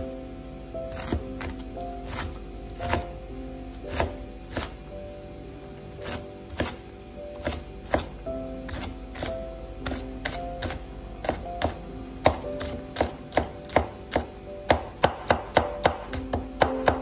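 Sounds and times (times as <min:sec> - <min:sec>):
cleaver chopping on wooden board: 0:09.9 - 0:17.0.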